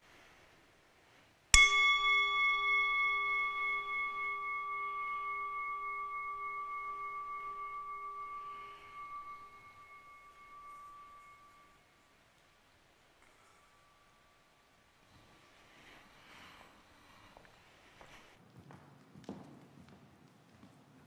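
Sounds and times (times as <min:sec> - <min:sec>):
singing bowl ringing: 0:01.6 - 0:12.1.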